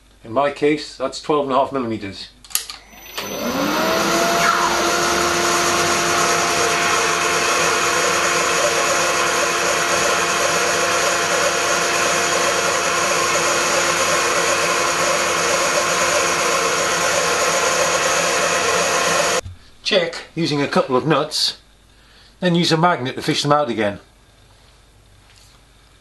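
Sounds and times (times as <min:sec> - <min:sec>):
drill humming: 0:02.7 - 0:19.4
dust extraction rushing: 0:02.9 - 0:19.4.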